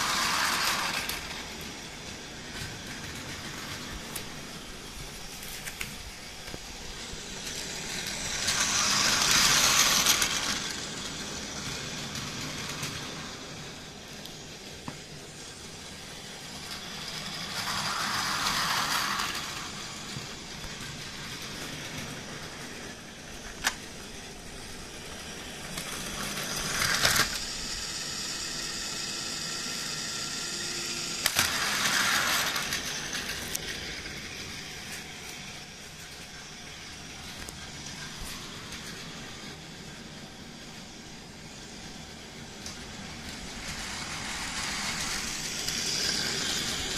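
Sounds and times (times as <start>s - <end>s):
toy train motor whirring: 0.0s - 46.9s.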